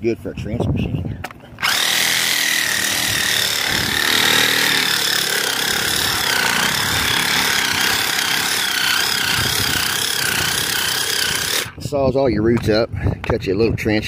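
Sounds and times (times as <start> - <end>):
reciprocating saw motor whine: 1.6 - 11.8
saw blade in soil: 1.6 - 11.8.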